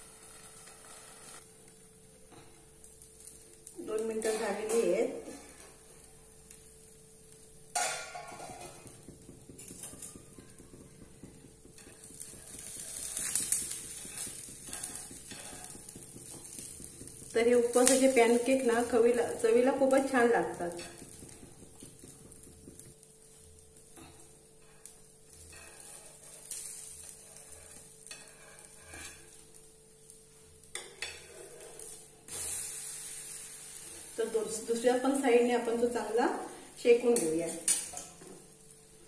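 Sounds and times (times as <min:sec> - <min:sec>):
pancake sizzling in oil: 0:00.0 - 0:39.0
metal spatula scraping: 0:04.0 - 0:05.8, 0:07.7 - 0:09.0, 0:09.6 - 0:21.4, 0:24.0 - 0:29.5, 0:30.7 - 0:34.2.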